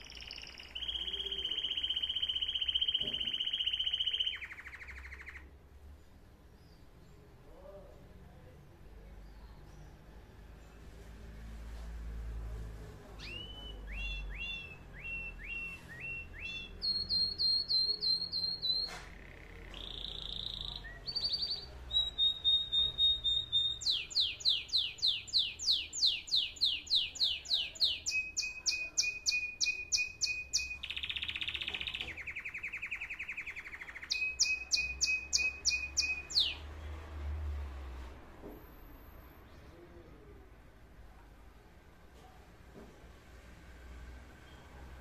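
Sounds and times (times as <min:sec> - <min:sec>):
canary singing: 0:00.0 - 0:05.6, 0:13.0 - 0:37.0.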